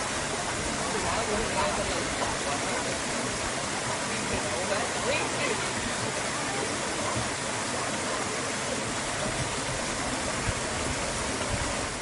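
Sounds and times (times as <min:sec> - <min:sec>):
stream rushing over boulders: 0:00.0 - 0:12.0.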